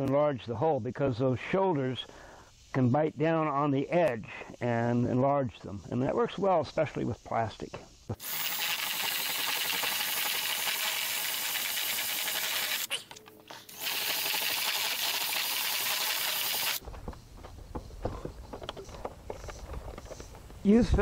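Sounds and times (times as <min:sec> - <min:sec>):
power drill cutting plastic: 0:08.2 - 0:16.8.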